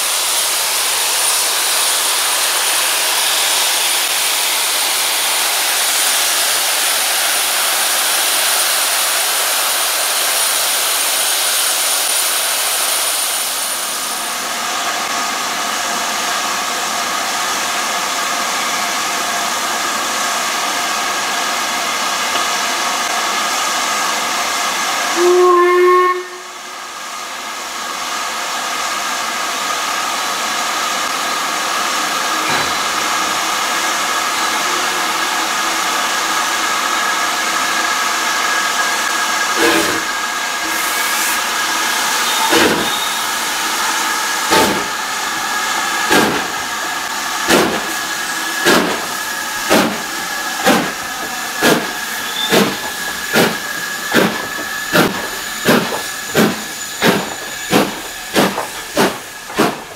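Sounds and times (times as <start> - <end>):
steam locomotive hissing: 0.0 - 59.9
train whistle blast: 25.1 - 26.8, 39.6 - 44.2, 52.1 - 54.1.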